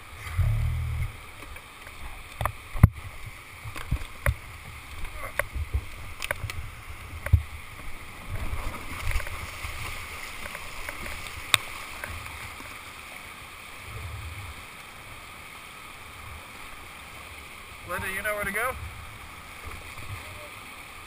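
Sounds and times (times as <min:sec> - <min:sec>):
low rumbling: 0:00.0 - 0:01.4
rapids rushing: 0:00.0 - 0:21.0
kayak sliding on gravel: 0:01.5 - 0:13.0.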